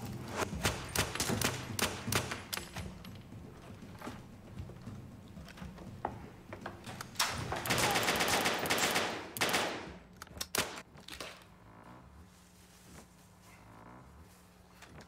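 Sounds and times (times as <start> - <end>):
sharp cracks: 7.2 - 11.4.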